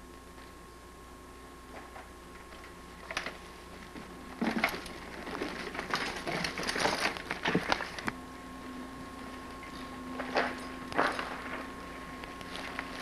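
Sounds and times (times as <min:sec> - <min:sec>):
faint steady hum: 0:00.0 - 0:13.0
crunching on rocky trail: 0:01.8 - 0:13.0
clicks and rattles: 0:04.0 - 0:08.2.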